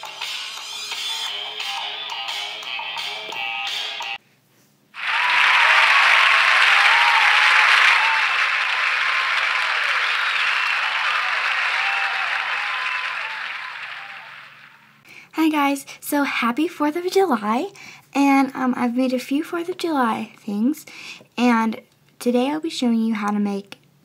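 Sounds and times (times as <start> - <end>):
crowd applauding: 5.0 - 15.0.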